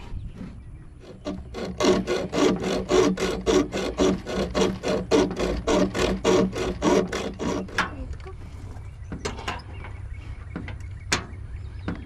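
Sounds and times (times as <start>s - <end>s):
hacksaw cutting metal: 1.0s - 8.0s.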